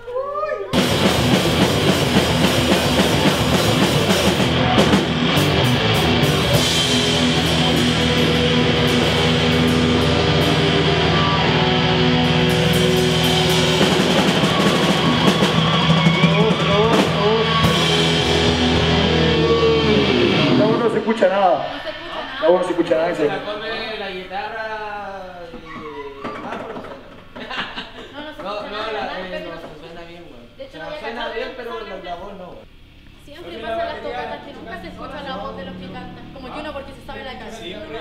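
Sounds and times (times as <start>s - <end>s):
live rock band playing: 0.7s - 22.4s.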